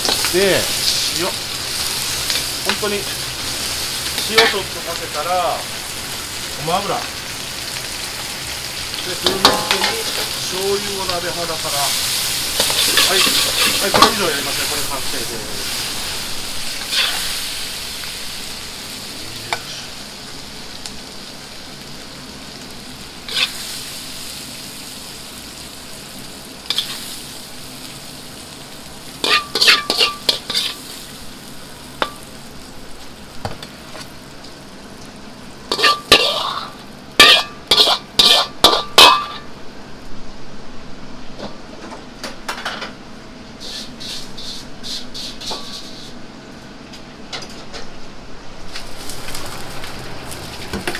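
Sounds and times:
wok sizzling: 0.0s - 50.9s
metal ladle scraping a wok: 12.6s - 13.9s, 16.8s - 17.4s, 23.3s - 23.6s, 26.7s - 27.0s, 29.2s - 30.8s, 35.7s - 39.5s, 43.6s - 46.2s.

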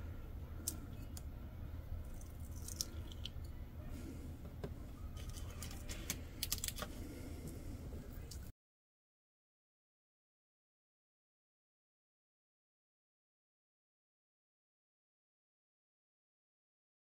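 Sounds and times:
steady low hum: 0.0s - 8.5s.

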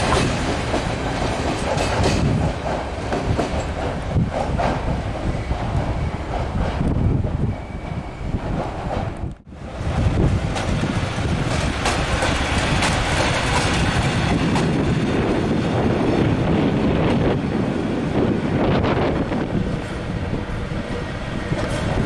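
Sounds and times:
wheels clicking over rail joints: 0.0s - 7.1s, 10.2s - 15.8s
train rumble: 0.0s - 22.0s.

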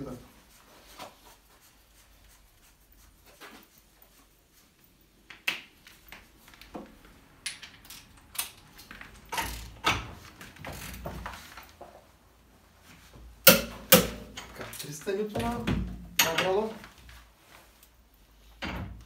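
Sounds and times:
metal tools clicking and clunking: 7.4s - 10.1s, 13.5s - 16.7s.

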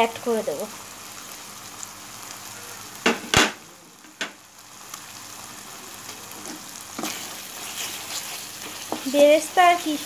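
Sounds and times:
paste sizzling in oil: 3.9s - 10.0s.

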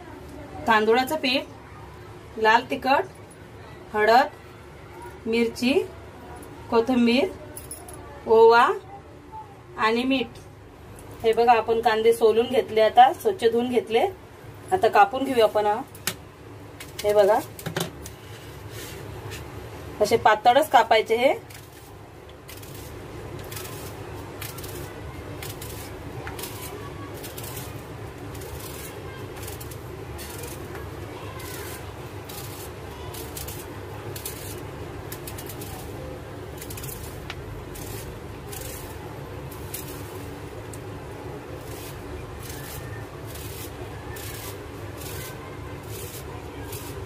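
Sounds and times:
knife slicing onion: 21.4s - 40.4s, 41.5s - 47.0s
knife slicing through onion: 41.5s - 47.0s.

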